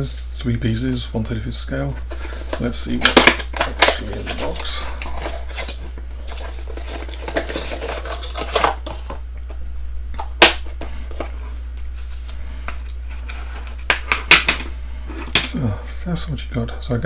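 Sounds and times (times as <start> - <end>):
steady low hum: 0.0 - 17.0
plastic case handled: 2.0 - 9.6.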